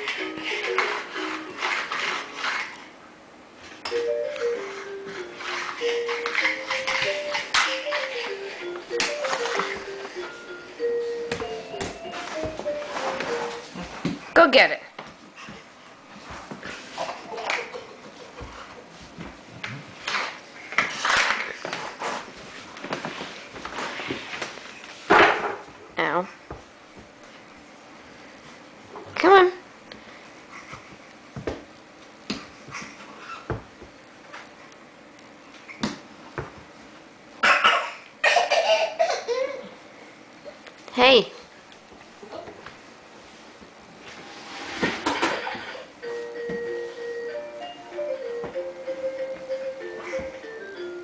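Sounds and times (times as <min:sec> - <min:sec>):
scuffing and rustling handling noise: 0:09.0 - 0:14.3.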